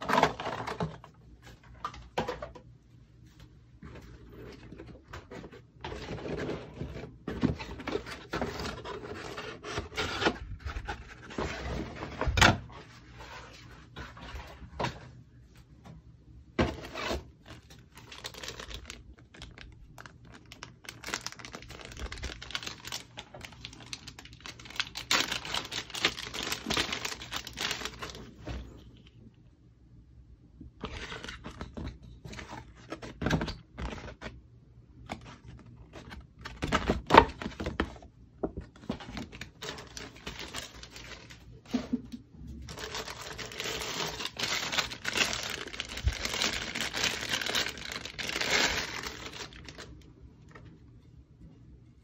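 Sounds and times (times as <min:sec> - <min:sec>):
plastic bags crinkling: 0:16.8 - 0:28.5, 0:38.9 - 0:41.9, 0:42.6 - 0:50.0.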